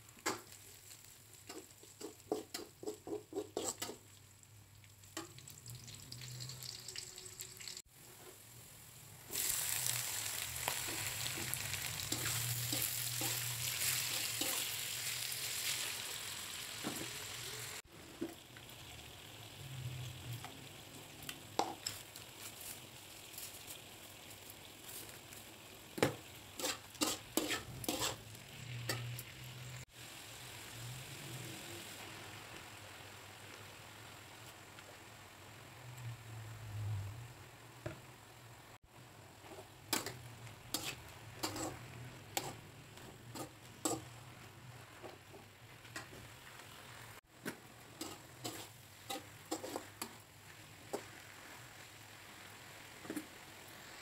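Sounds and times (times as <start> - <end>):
food sizzling in oil: 0.0 - 54.0
spatula scraping a wok: 1.0 - 4.1, 9.3 - 17.8, 26.0 - 29.8, 39.3 - 54.0.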